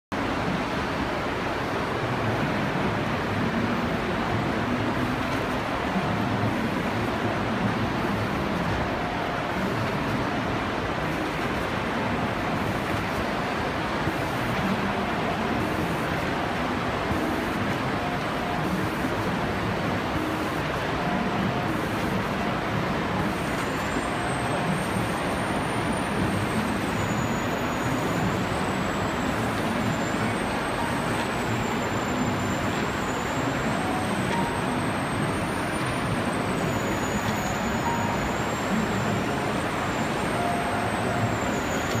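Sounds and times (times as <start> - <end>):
faint high whine: 23.2 - 42.0.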